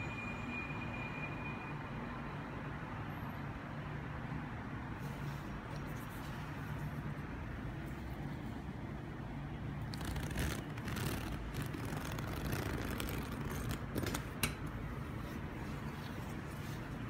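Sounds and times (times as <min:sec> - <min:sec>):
fabric rustling: 0:09.8 - 0:17.0
zipper being pulled down: 0:09.9 - 0:14.3
zipper click: 0:09.9 - 0:14.4.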